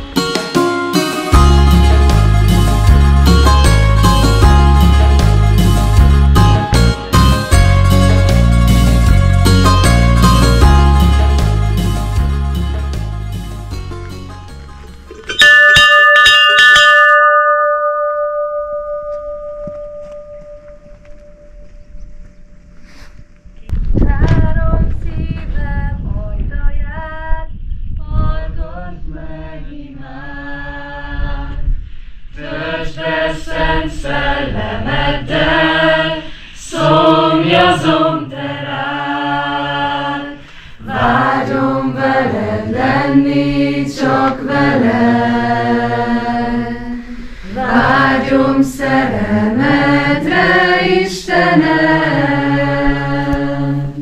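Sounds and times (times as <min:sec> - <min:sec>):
group singing unaccompanied: 0:28.1 - 0:31.7, 0:32.3 - 0:54.0.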